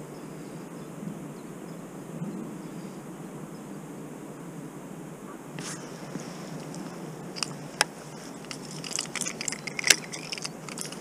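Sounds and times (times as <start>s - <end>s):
low background noise: 0.0s - 11.0s
sharp handling clicks: 6.6s - 11.0s
light metallic jangle: 6.7s - 11.0s.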